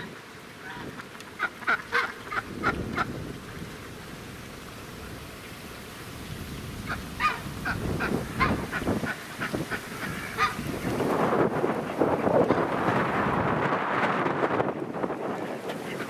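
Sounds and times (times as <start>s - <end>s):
geese honking: 0.6s - 3.2s, 6.8s - 10.9s.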